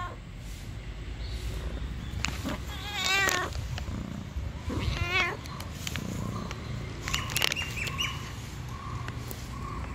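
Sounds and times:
cat meowing: 0:02.5 - 0:03.6, 0:04.7 - 0:05.4.

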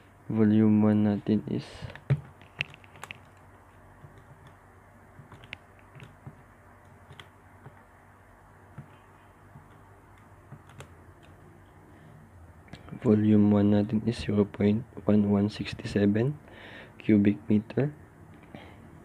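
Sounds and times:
calculator keys clicking: 0:01.8 - 0:04.6, 0:05.2 - 0:07.9, 0:09.6 - 0:11.4.

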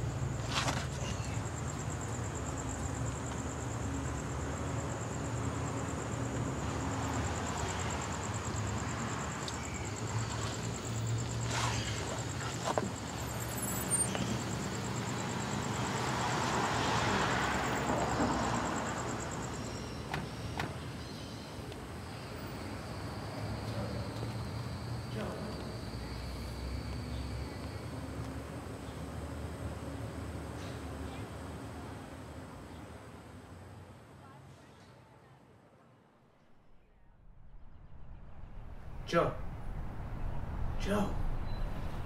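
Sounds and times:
high insect trill: 0:00.0 - 0:31.7
distant traffic hum: 0:00.0 - 0:36.6, 0:37.4 - 0:42.0.

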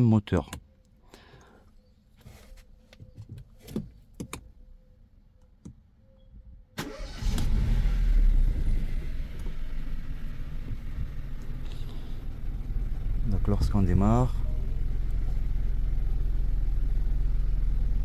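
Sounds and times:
car engine starting and idling: 0:06.8 - 0:18.0.

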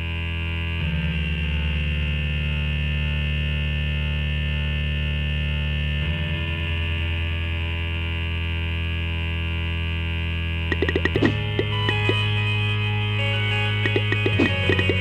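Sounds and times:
deep drone: 0:00.0 - 0:15.0
sustained synthesizer chords: 0:00.0 - 0:15.0.

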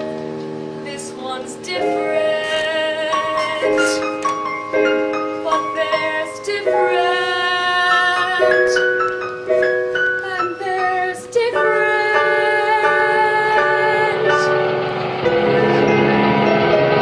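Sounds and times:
instrumental accompaniment: 0:00.0 - 0:17.0
young female voice singing: 0:00.9 - 0:04.2, 0:05.4 - 0:09.0, 0:10.2 - 0:14.6.

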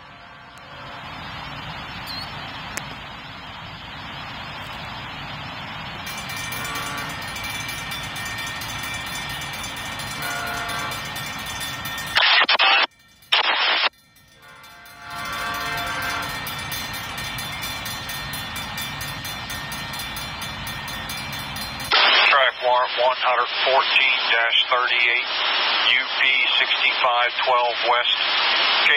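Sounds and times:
locomotive horn chord: 0:00.0 - 0:01.4, 0:06.3 - 0:07.4, 0:10.1 - 0:11.2, 0:14.4 - 0:16.6
crossing signal bells ringing: 0:00.0 - 0:22.8
loud harsh noise bursts: 0:21.9 - 0:28.9.

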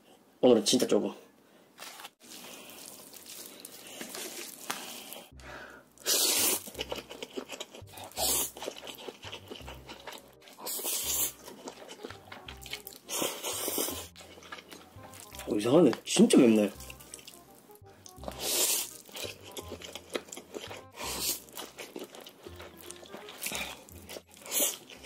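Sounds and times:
wet chewing and smacking: 0:02.2 - 0:05.4, 0:06.0 - 0:25.0
slurping noodles: 0:06.0 - 0:14.8, 0:18.2 - 0:25.0
chopsticks stirring sauce: 0:06.4 - 0:17.5, 0:18.1 - 0:25.0.

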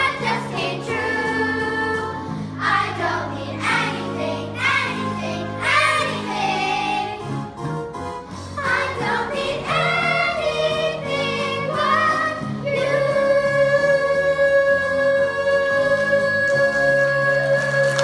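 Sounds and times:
musical accompaniment: 0:00.0 - 0:18.0
children singing into microphones: 0:08.6 - 0:18.0.

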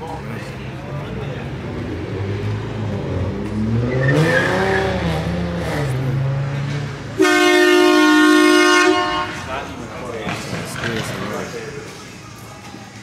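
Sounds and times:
car engine revving: 0:01.5 - 0:08.9
long car horn blast: 0:07.2 - 0:09.6.

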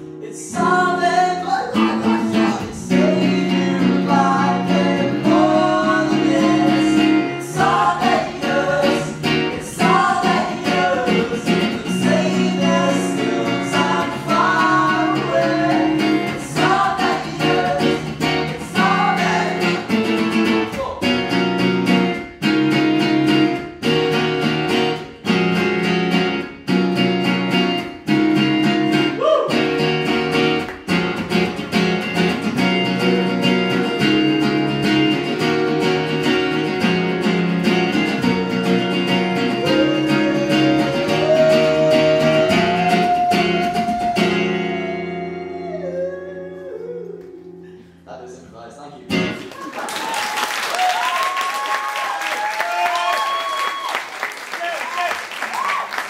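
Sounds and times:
guitars strumming: 0:00.0 - 0:48.0, 0:49.0 - 0:49.5
young man singing: 0:00.2 - 0:21.1, 0:32.9 - 0:34.5, 0:38.2 - 0:47.6.

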